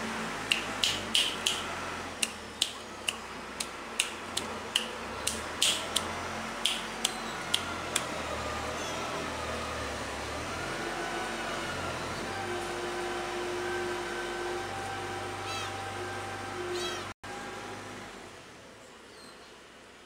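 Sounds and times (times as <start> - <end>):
sharp hand clicks: 0.5 - 1.6, 2.2 - 8.1.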